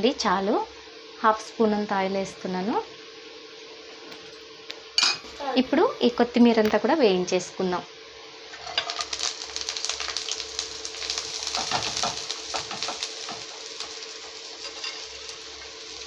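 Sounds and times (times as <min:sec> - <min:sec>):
leaves sizzling in hot pan: 0:00.0 - 0:16.0
steady hum: 0:00.0 - 0:16.0
leaves rustling on steel plate: 0:08.5 - 0:16.0.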